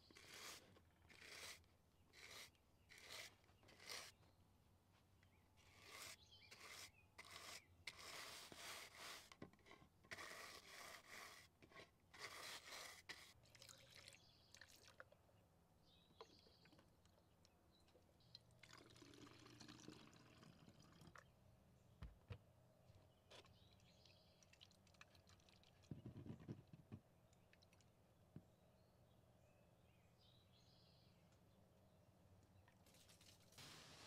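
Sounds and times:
water trickling: 24.4 - 25.9.

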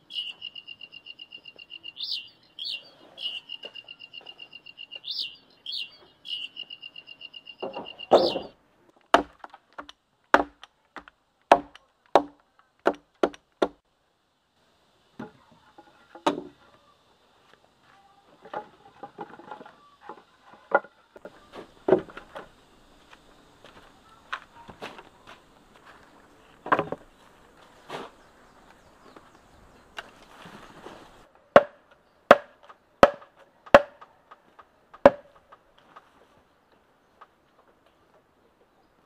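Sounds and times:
bamboo poles knocking: 7.6 - 13.8, 15.2 - 16.6, 18.4 - 22.5, 26.6 - 27.1, 31.5 - 36.1
machete chopping bamboo: 9.0 - 13.8, 31.5 - 34.1, 35.0 - 35.6.

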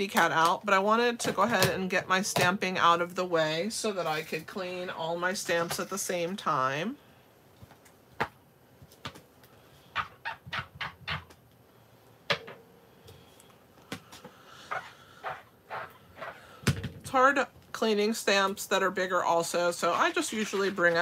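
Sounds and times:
rubber stamps squeaking on pad: 9.9 - 11.4, 14.7 - 16.5.

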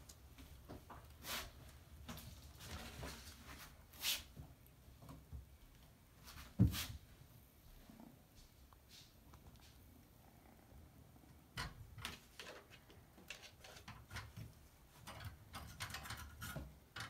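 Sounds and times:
kitten claws scratching bathtub: 12.0 - 17.0.

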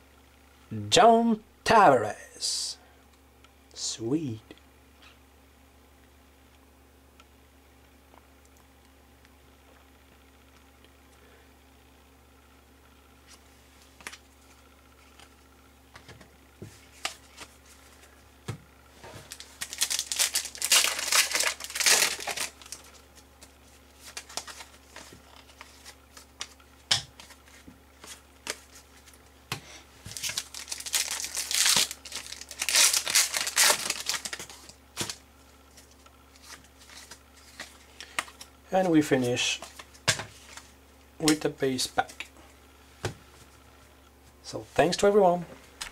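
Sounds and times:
foil wrapper crinkling and tearing: 19.2 - 26.6, 30.1 - 35.2.

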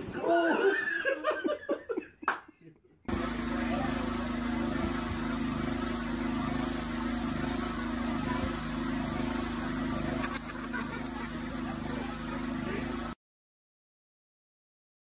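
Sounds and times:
small petrol engine running: 3.1 - 13.2.

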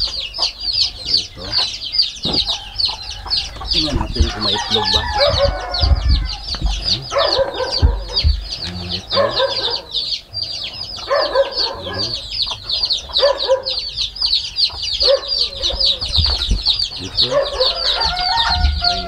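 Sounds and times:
chicks peeping: 0.0 - 19.0
hen clucking: 0.0 - 19.0.

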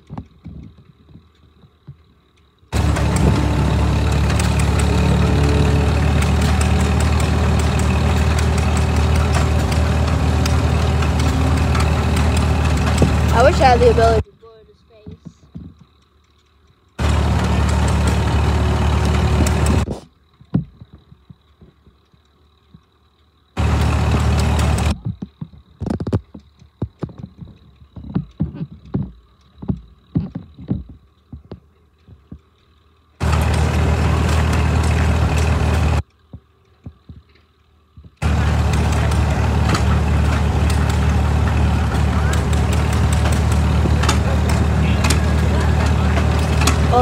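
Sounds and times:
steam engine loud steady noise: 2.7 - 15.0, 17.0 - 20.1, 23.6 - 25.0, 33.2 - 36.0, 38.2 - 47.0.

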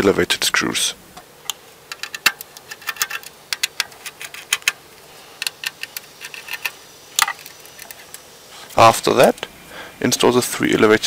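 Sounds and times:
screwdriver and small screws clicking: 1.5 - 4.8, 5.4 - 8.2.

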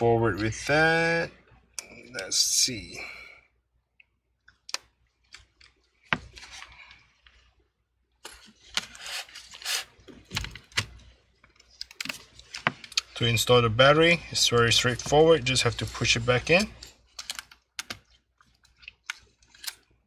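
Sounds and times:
laptop parts clicking and rattling: 8.6 - 13.2, 14.5 - 20.0.

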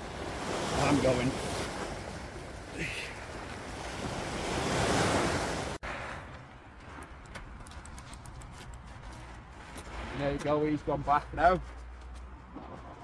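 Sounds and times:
sea waves washing against rocks: 0.0 - 5.8
wind: 0.0 - 13.0.

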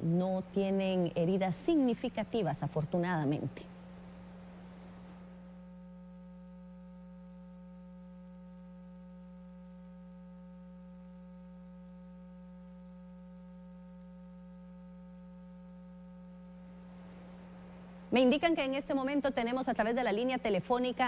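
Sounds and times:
electrical hum: 0.0 - 21.0
light hiss: 3.2 - 5.7, 15.6 - 19.2.

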